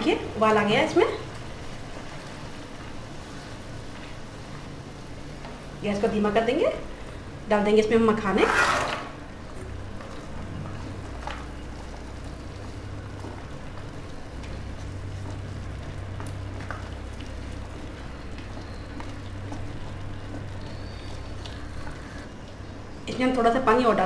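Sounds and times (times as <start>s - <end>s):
low steady hum: 0.0s - 24.0s
gravy simmering and bubbling: 9.0s - 23.8s
wooden spatula stirring clicks: 9.5s - 23.4s.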